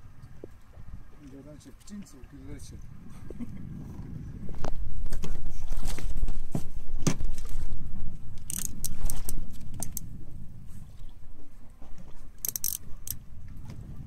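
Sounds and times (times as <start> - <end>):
boat engine low rumble: 0.0 - 14.0
sharp clicks and clinks: 12.4 - 13.2.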